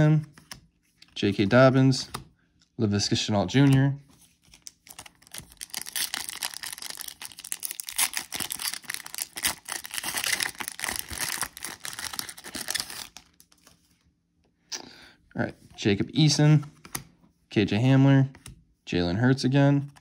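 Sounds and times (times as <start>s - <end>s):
foil wrapper tearing and crinkling: 4.6s - 13.6s.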